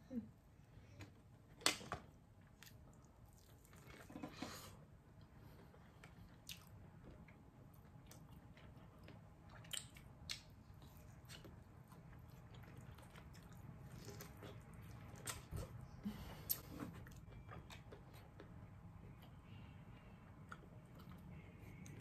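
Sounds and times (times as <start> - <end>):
person chewing: 2.6 - 4.1, 5.6 - 18.6.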